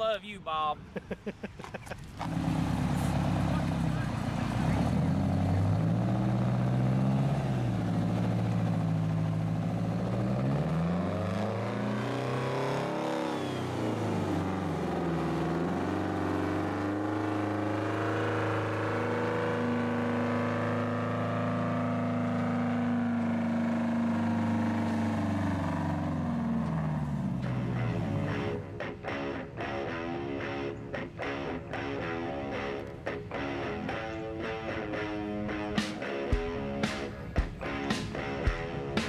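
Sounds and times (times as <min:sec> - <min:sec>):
diesel truck engine pulling away: 0:02.0 - 0:28.9.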